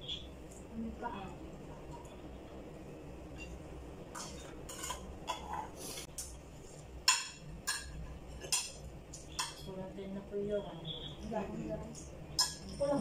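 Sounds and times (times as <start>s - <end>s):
spoons clinking against plates: 3.3s - 6.4s, 7.0s - 9.7s, 11.9s - 13.0s
plates being handled: 4.2s - 6.1s.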